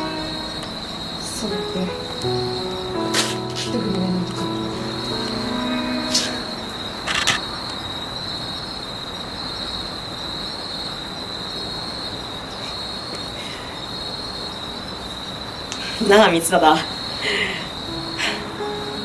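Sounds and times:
steady high-pitched tone: 0.0 - 9.1
low hiss: 0.0 - 10.2.

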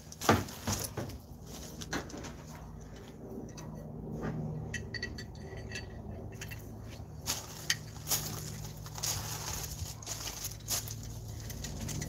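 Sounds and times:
low steady hum: 0.0 - 12.0
footsteps crunching on gravel: 6.9 - 12.0.

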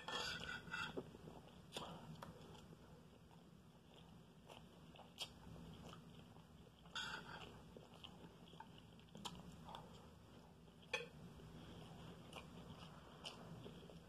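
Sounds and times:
spoon scraping plate: 0.0 - 1.0, 6.9 - 7.5
soft chewing and mouth clicks: 0.4 - 14.0.

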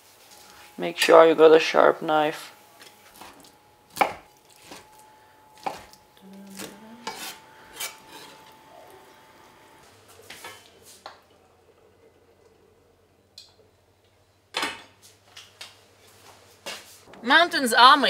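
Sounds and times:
knife chopping on wooden board: 3.2 - 4.8, 5.6 - 6.0.

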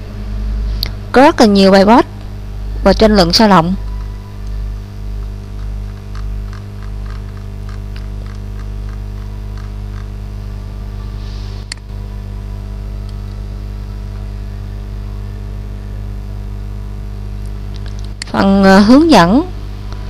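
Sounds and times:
electrical hum: 0.0 - 20.0
mouse scroll wheel ticking: 5.9 - 10.1.

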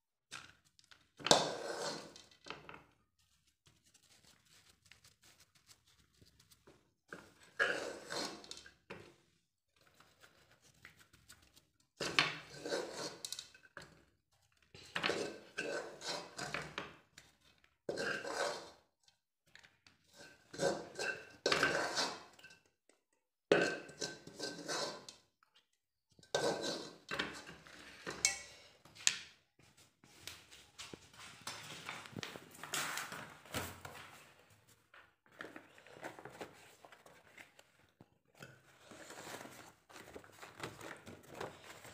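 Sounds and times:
metal spoon scraping in pot: 1.3 - 2.2, 7.4 - 8.7, 12.4 - 13.5, 14.9 - 16.6, 17.9 - 18.8, 20.1 - 22.4, 23.7 - 25.2, 26.2 - 28.6.

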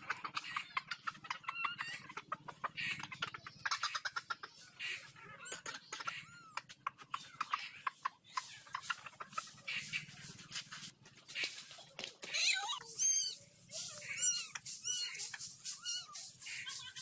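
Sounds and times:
short chirping calls: 12.5 - 17.0.

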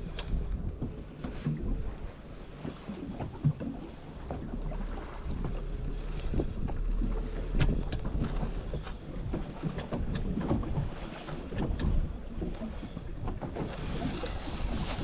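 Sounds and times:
water lapping against boat hull: 0.0 - 15.0
wind buffeting microphone: 0.0 - 15.0
sharp clicks and knocks: 7.4 - 10.8, 11.5 - 12.0.

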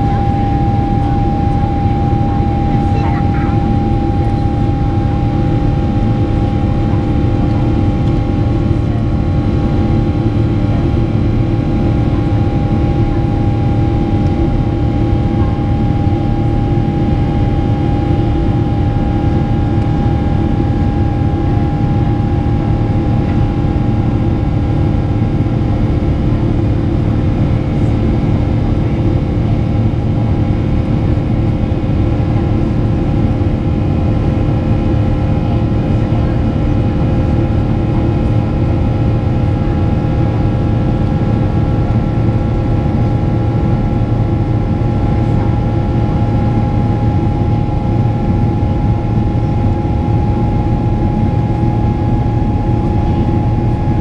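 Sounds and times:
steady whining tones: 0.0 - 23.4
jet engine drone in cabin: 0.0 - 54.0.

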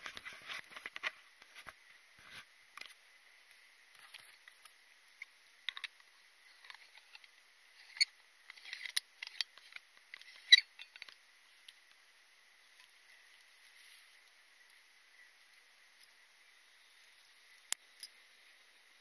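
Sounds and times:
metal threads scraping: 5.7 - 11.2.

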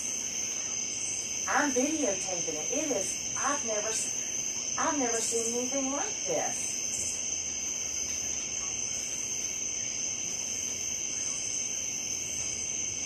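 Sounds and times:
night insect chorus: 0.0 - 13.0.

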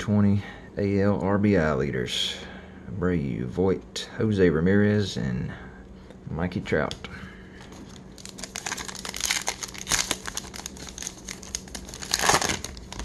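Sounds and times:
wrapper crinkling as torn open: 8.1 - 13.0.

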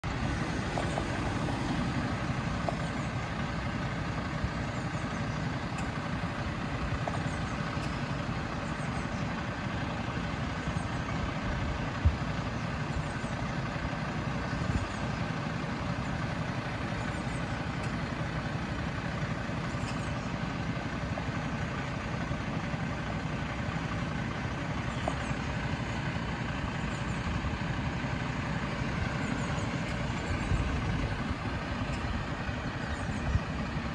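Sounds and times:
bus engine idling: 0.0 - 33.9.

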